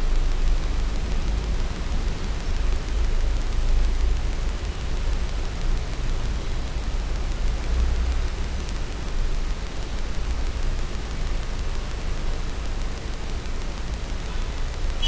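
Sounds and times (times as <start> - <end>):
steady hiss: 0.0 - 15.0.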